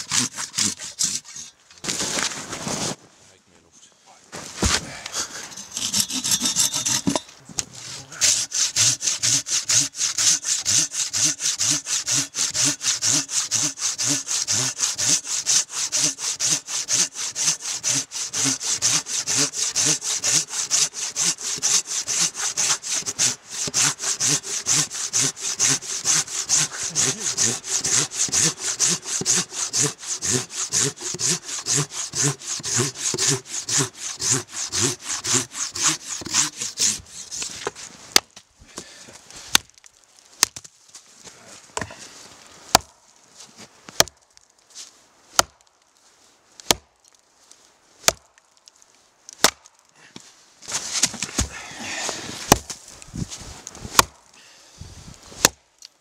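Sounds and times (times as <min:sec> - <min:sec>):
hand saw cutting through log: 0:00.0 - 0:03.0, 0:04.5 - 0:07.2, 0:07.8 - 0:38.2, 0:50.7 - 0:52.9, 0:53.8 - 0:54.1.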